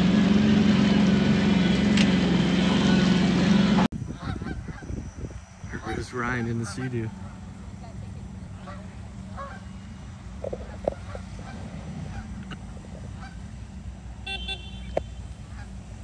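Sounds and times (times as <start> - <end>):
geese honking: 2.3 - 4.9, 5.7 - 7.6, 8.5 - 13.6, 14.3 - 15.8.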